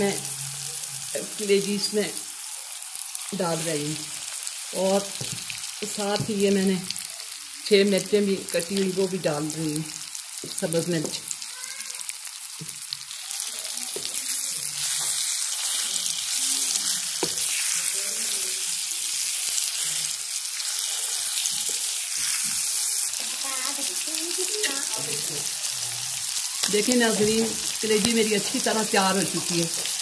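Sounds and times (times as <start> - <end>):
liver sizzling in hot oil: 0.0 - 30.0
spatula stirring and knocking in pan: 5.1 - 6.5, 13.9 - 18.0, 19.5 - 24.0.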